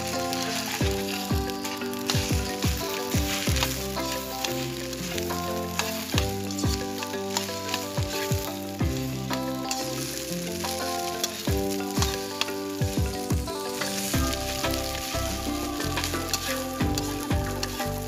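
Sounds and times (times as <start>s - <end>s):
metal spatula scraping pan: 0.0s - 18.0s
rice sizzling in a wok: 0.0s - 18.0s
background music with bass thumps: 0.8s - 4.2s, 6.1s - 7.0s, 8.0s - 9.5s, 11.5s - 18.0s.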